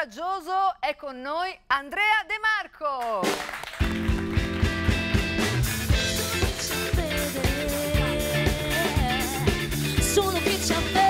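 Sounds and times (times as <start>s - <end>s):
drums with steady beat: 3.3s - 11.0s
bass guitar: 3.8s - 11.0s
electric guitars: 3.8s - 11.0s.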